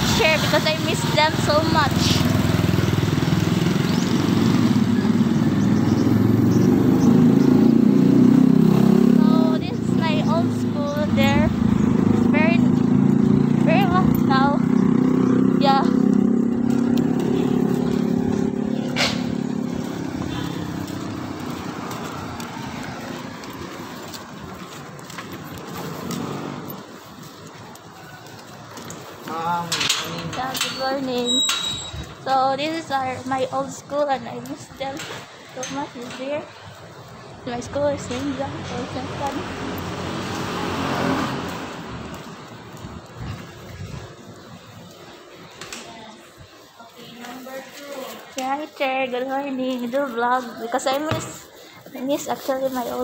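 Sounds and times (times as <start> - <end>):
vehicle engine running: 0.0 - 22.6.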